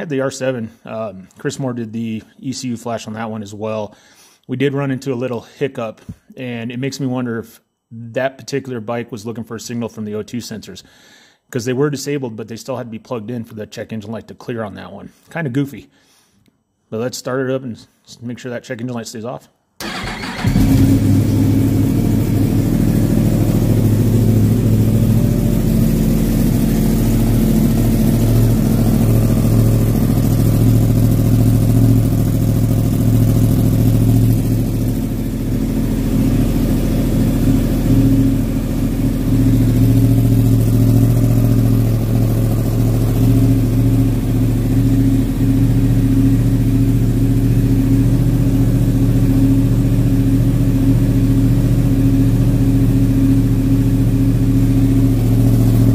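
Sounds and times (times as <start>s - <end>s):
motorcycle engine idling: 19.8s - 55.9s.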